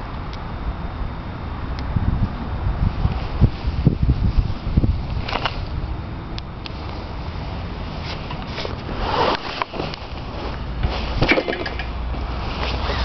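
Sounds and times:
low road rumble: 0.0 - 13.0
wind rushing over microphone: 0.0 - 13.0
brief rustle: 5.2 - 5.7.

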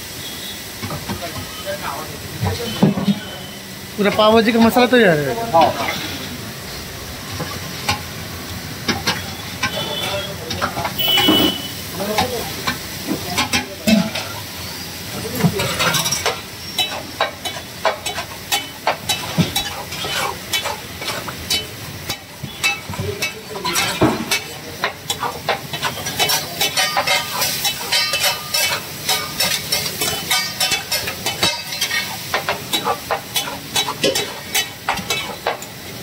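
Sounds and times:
food sizzling in oil: 0.0 - 36.0
metal utensil scraping pan: 8.8 - 35.8.

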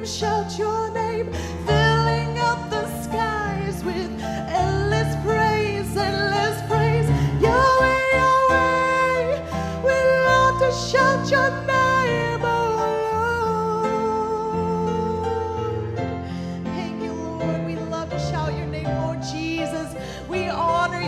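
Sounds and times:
woman singing gospel song: 0.0 - 15.6
keyboard: 0.0 - 21.0.

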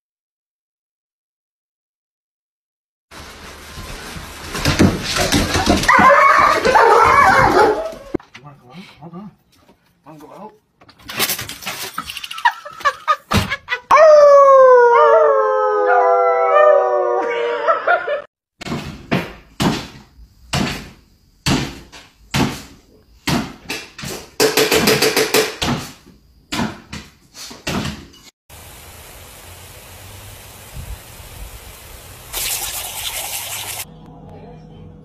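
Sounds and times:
paws thumping on wooden floor: 4.4 - 8.2
dog howling: 5.9 - 8.2, 13.9 - 18.1.

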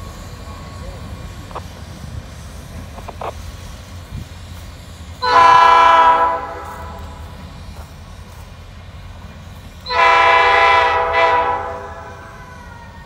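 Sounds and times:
freight cars rumbling: 0.0 - 13.0
locomotive air horn blast: 5.2 - 7.2, 9.9 - 12.3.

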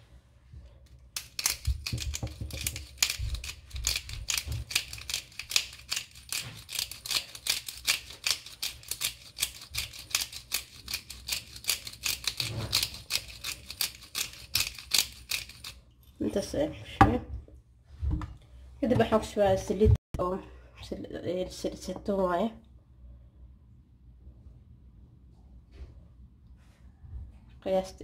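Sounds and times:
pepper grinder clicking: 1.2 - 15.8.

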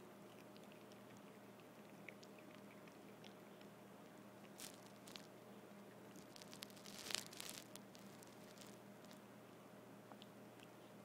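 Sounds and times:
low steady hum: 0.0 - 11.0
puppy chewing crunching: 0.1 - 9.2.

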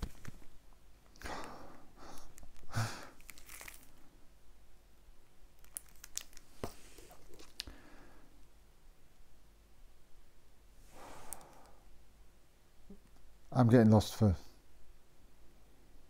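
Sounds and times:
plastic and cardboard rustling: 3.2 - 4.0.

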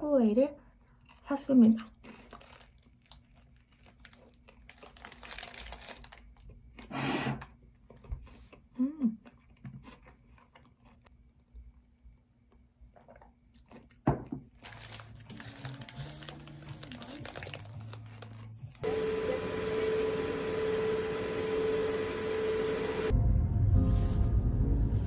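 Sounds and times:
paper wrapper crinkling: 1.6 - 6.6, 14.5 - 18.8.

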